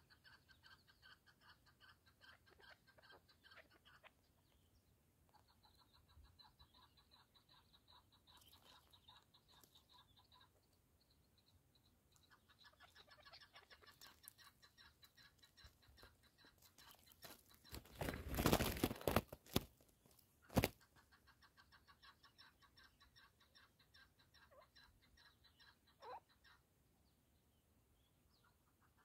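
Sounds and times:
partridge calling: 0:00.0 - 0:19.1, 0:20.4 - 0:26.7, 0:28.0 - 0:29.0
wings beating hard: 0:17.7 - 0:19.6.

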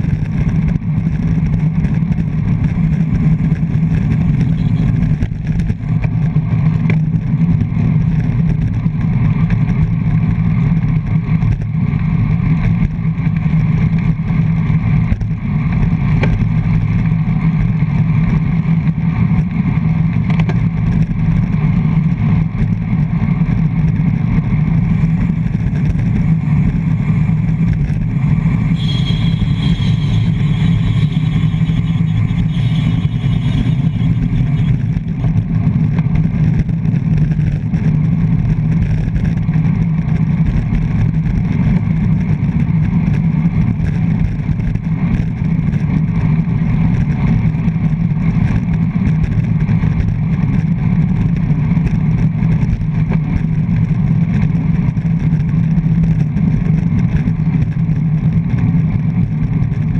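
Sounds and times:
tyre noise on asphalt: 0:00.0 - 0:59.9
wind rushing over camera: 0:00.0 - 0:59.9
faint high whistle: 0:28.6 - 0:34.8.

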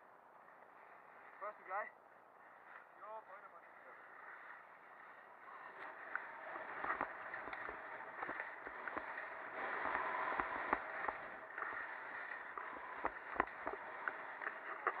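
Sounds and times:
skis scraping over snow: 0:02.4 - 0:15.0
sharp clicks and knocks: 0:05.8 - 0:15.0.

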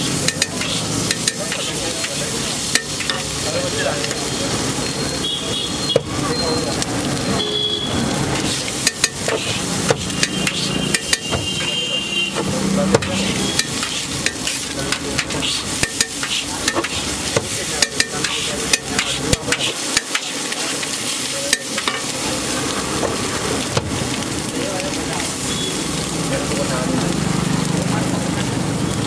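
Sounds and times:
food sizzling on griddle: 0:00.0 - 0:29.0
metal spatula clacking and scraping: 0:00.1 - 0:05.2, 0:08.4 - 0:22.2.

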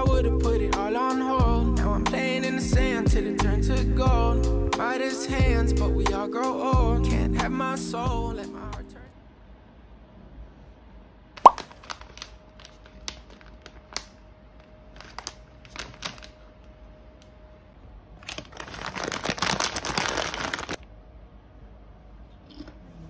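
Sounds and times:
paper chip bag crinkling: 0:11.4 - 0:16.6, 0:18.2 - 0:20.8.

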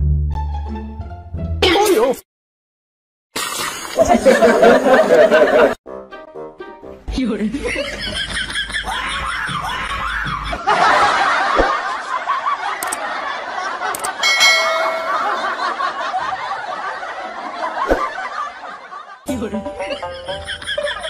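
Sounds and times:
laugh track: 0:04.0 - 0:05.8, 0:07.4 - 0:21.0
sharp clicks: 0:12.8 - 0:13.0
bell-like ding: 0:14.2 - 0:15.8.

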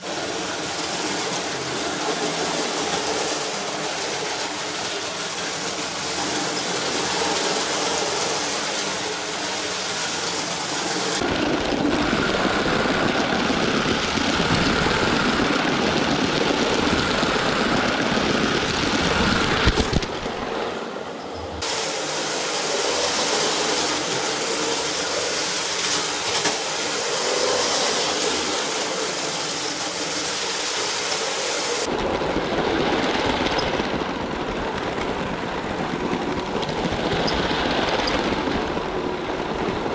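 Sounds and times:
wheels rattling over track joints: 0:00.0 - 0:39.9
toy train motor whirring: 0:22.0 - 0:31.9.

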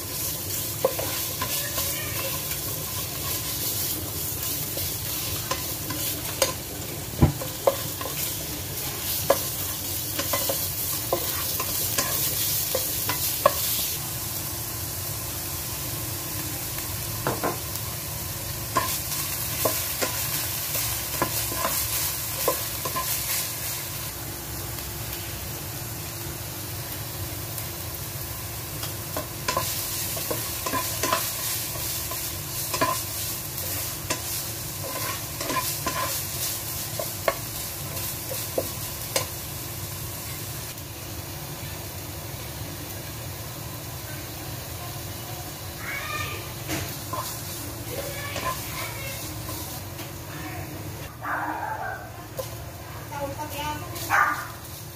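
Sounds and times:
meat sizzling in a frying pan: 0:00.0 - 0:54.9
utensils scraping a pan: 0:29.5 - 0:37.4.

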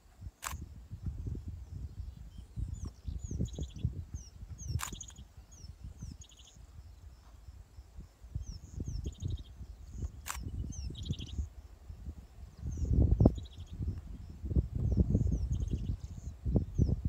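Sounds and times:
sharp click: 0:00.4 - 0:00.6, 0:04.7 - 0:05.2, 0:10.0 - 0:10.5
birds trilling and whistling: 0:01.5 - 0:07.4, 0:08.3 - 0:11.6.

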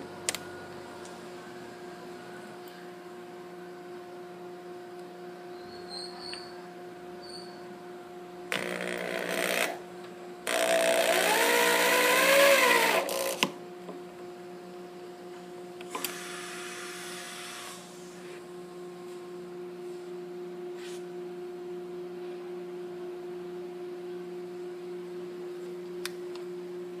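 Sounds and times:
steady low hum: 0:00.0 - 0:27.0
power drill boring into wood: 0:10.5 - 0:13.4.

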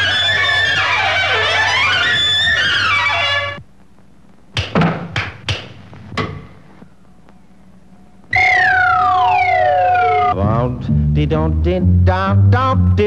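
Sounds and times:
sharp knocks: 0:04.6 - 0:06.5
sliding whistle-like tone: 0:08.3 - 0:10.4.

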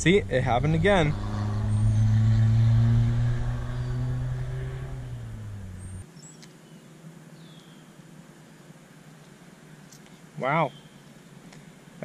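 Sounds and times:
vehicle engine hum: 0:00.0 - 0:06.8.

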